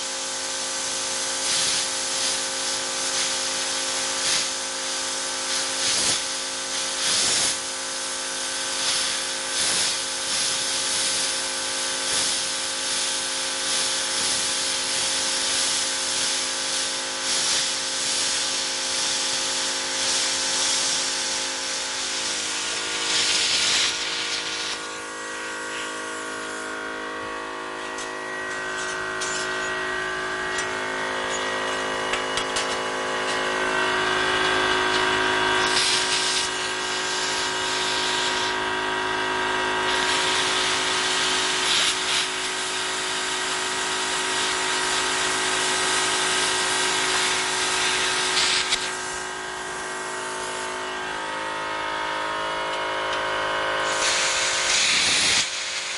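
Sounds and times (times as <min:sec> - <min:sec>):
plasma cutter hissing: 0:00.0 - 0:51.5, 0:53.7 - 0:55.9
machine hum: 0:21.3 - 0:37.7, 0:44.8 - 0:54.9.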